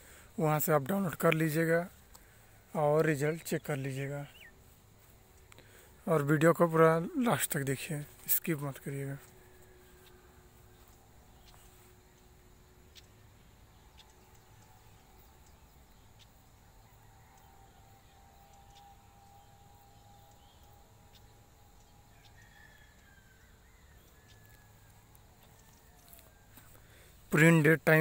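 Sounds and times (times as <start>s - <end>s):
faint background hiss: 0.0s - 28.0s
faint clicks: 2.0s - 2.3s, 5.3s - 5.8s.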